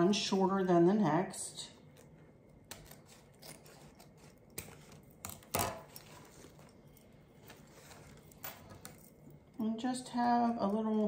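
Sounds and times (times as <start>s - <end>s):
ribbon rustling: 1.8s - 9.5s.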